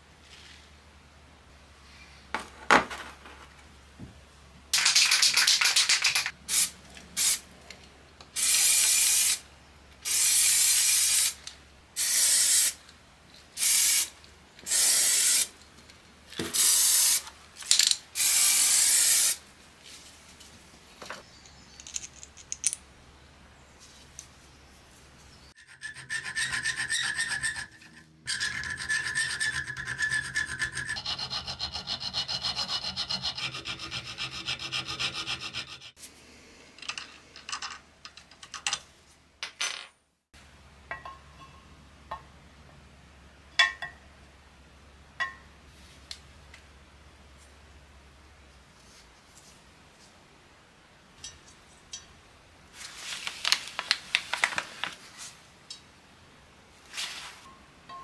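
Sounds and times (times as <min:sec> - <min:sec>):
hand file rasping on steel: 0:25.6 - 0:36.0.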